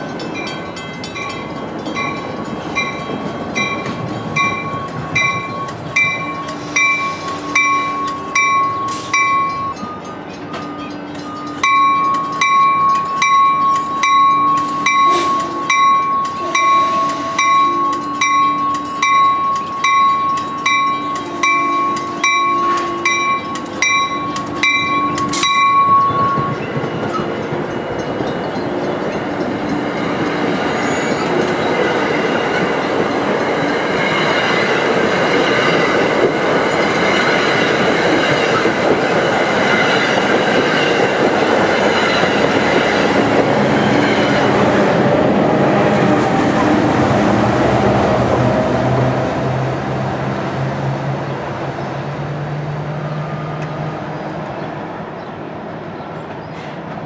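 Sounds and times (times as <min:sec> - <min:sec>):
train bell ringing: 0:00.0 - 0:45.2
rumble of train cars passing: 0:00.0 - 0:57.0.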